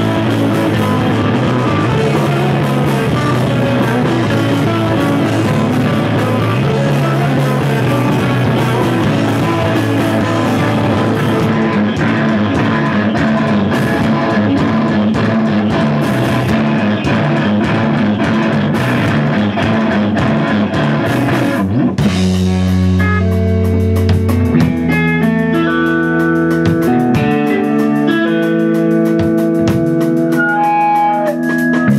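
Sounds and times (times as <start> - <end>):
ringing guitar and bass notes: 0.0 - 31.9
rock band playing: 0.0 - 31.9.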